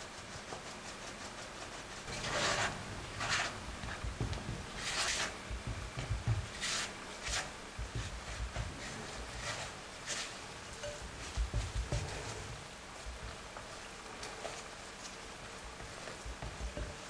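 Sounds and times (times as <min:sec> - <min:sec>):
spatula scraping in glass bowl: 0:02.1 - 0:03.6.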